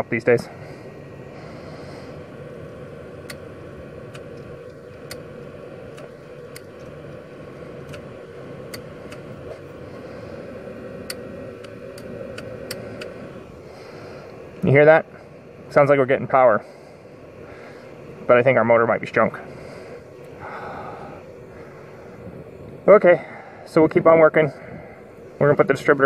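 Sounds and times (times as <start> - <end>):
steady motor hum: 0.0 - 26.0
wiper motor ticking: 1.0 - 16.6.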